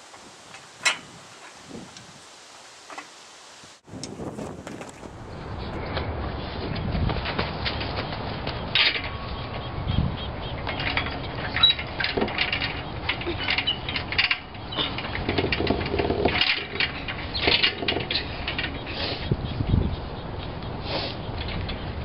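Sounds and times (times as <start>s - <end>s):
wind buffeting microphone: 0.0s - 2.4s, 3.6s - 22.0s
knocks and rustles: 4.0s - 5.2s, 10.6s - 18.8s.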